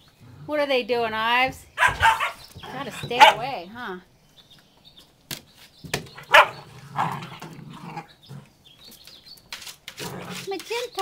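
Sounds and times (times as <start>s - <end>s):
puppies barking and yipping: 1.7s - 3.6s, 6.1s - 8.4s.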